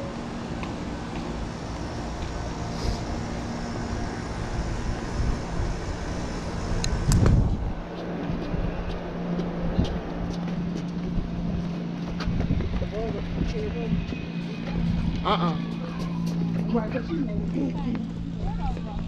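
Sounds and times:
steady low hum: 0:00.0 - 0:19.0
wind buffeting microphone: 0:03.8 - 0:15.3.

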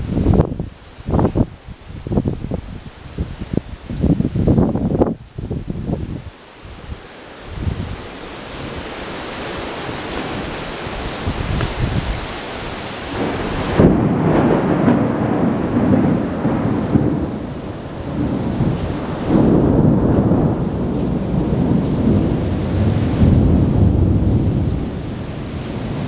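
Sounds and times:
heavy rain hissing: 0:00.0 - 0:26.0
thunder rolling rumble: 0:13.1 - 0:26.0.

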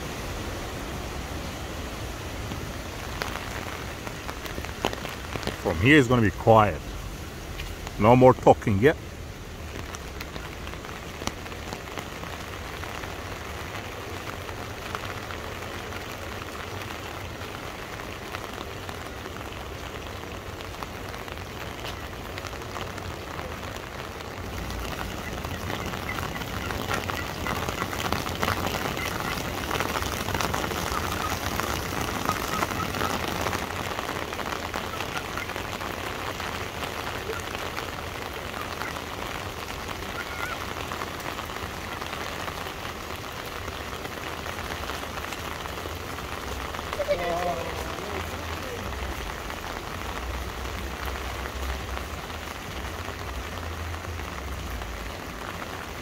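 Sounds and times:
heavy rain on hard surfaces: 0:00.0 - 0:56.0.

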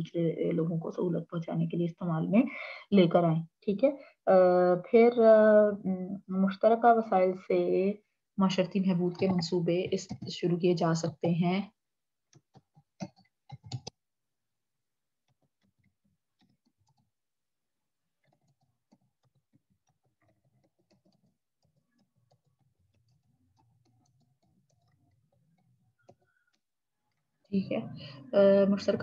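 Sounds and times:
computer keyboard typing: 0:09.0 - 0:11.2, 0:12.3 - 0:14.0, 0:15.2 - 0:17.1, 0:18.2 - 0:27.6.

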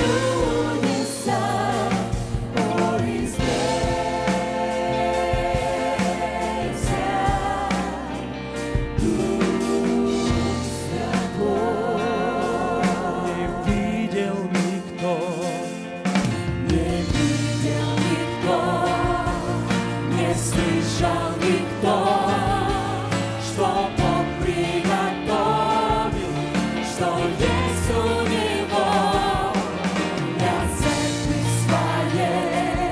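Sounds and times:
women singing worship music: 0:00.0 - 0:15.5, 0:16.6 - 0:32.9
keyboard-led band: 0:00.0 - 0:32.9.

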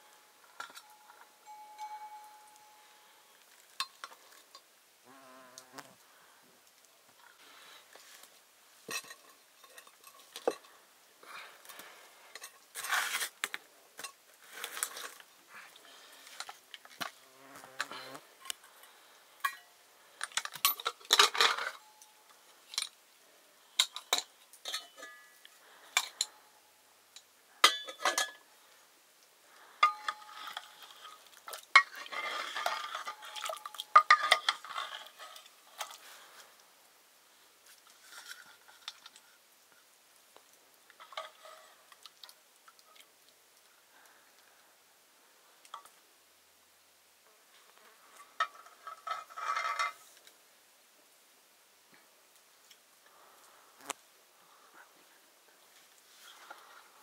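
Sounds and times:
metal utensils clinking on dishes: 0:08.9 - 0:10.8, 0:23.8 - 0:25.4, 0:27.6 - 0:28.4, 0:31.8 - 0:36.0.

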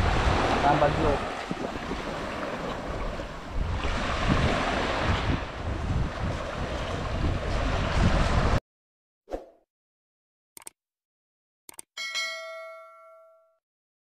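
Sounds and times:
small waves on sandy beach: 0:00.0 - 0:08.6
wind rumble on microphone: 0:00.0 - 0:08.6.

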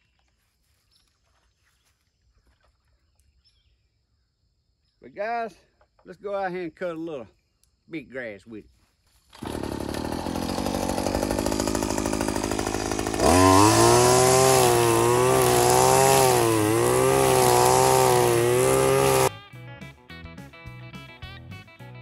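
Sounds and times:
string trimmer engine: 0:09.3 - 0:19.3.

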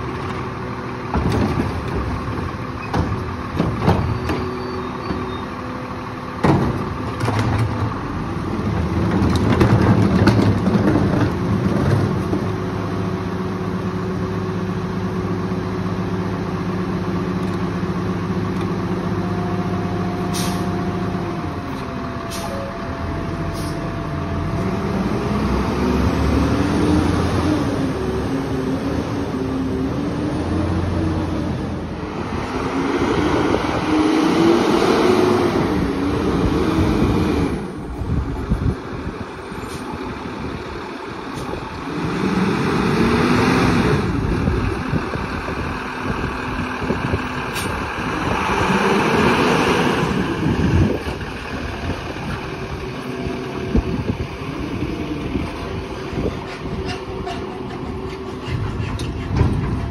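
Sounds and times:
garbage truck engine revving: 0:00.2 - 0:59.9
knocks and clanks: 0:01.1 - 0:04.5, 0:06.4 - 0:08.0, 0:08.7 - 0:12.6, 0:56.1 - 0:59.9.

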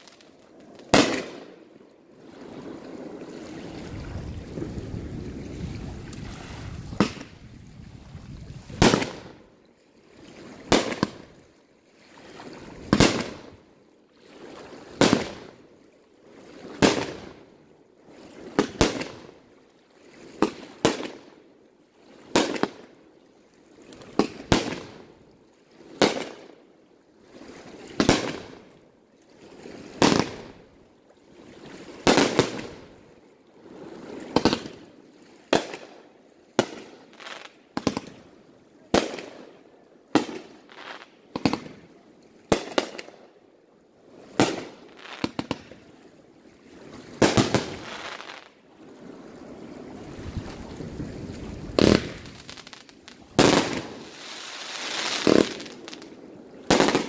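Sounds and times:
fireworks bursting: 0:00.0 - 0:01.5, 0:06.9 - 0:07.4, 0:08.7 - 0:09.3, 0:47.2 - 0:48.5, 0:51.7 - 0:57.0.

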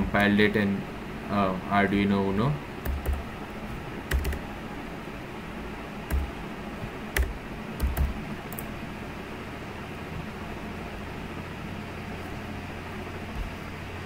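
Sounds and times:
steady low hum: 0:00.0 - 0:14.0
keyboard keystrokes: 0:02.8 - 0:03.2, 0:04.1 - 0:04.4, 0:06.1 - 0:06.3, 0:07.2 - 0:08.7.

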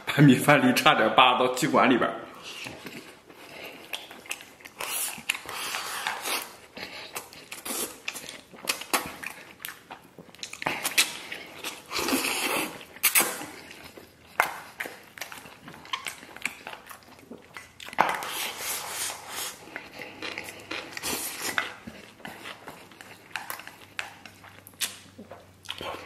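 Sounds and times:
wet chewing: 0:02.4 - 0:26.0
slurping: 0:10.4 - 0:26.0.

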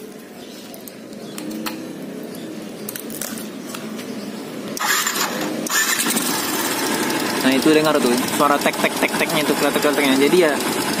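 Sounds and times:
motorcycle engine idling: 0:04.8 - 0:11.0
engine ticking clatter: 0:05.6 - 0:11.0.

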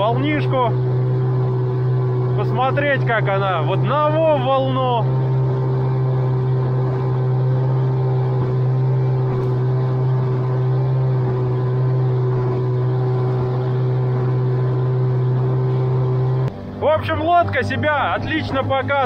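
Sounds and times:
boat rushing through waves: 0:00.0 - 0:19.0
outboard motor running: 0:00.0 - 0:19.0.

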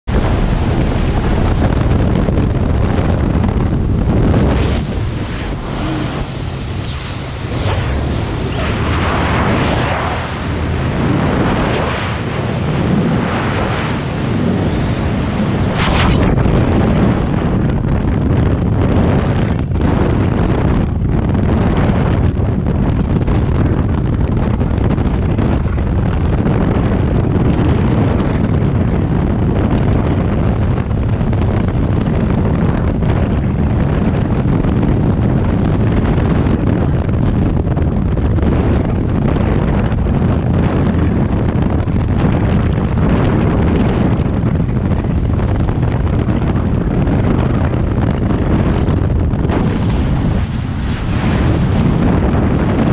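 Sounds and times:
wind buffeting microphone: 0:00.0 - 0:52.9
sharp crackle: 0:15.0 - 0:16.7, 0:48.9 - 0:52.9.

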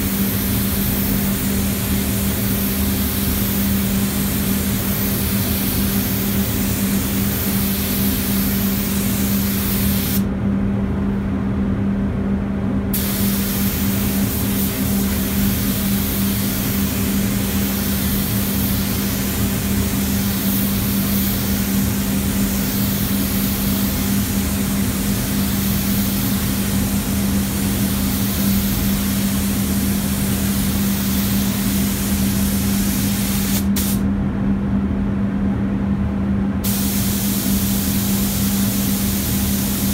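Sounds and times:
spray gun hissing: 0:00.0 - 0:10.2, 0:13.0 - 0:34.0, 0:36.6 - 0:39.9.

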